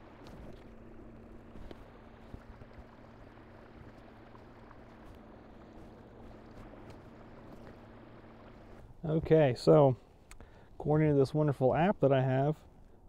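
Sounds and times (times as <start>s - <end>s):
electric motor humming: 0.0s - 9.0s
water washing along hull: 0.0s - 9.1s.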